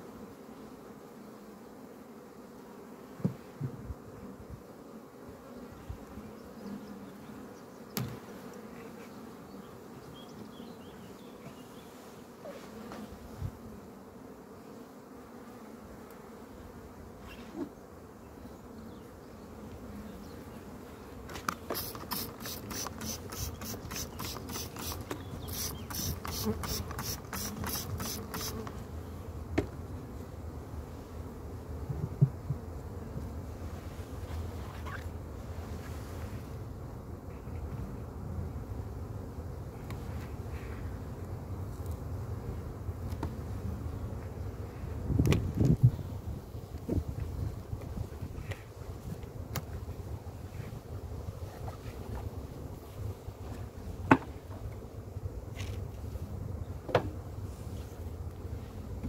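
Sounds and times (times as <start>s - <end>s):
bees buzzing: 0.0s - 33.1s.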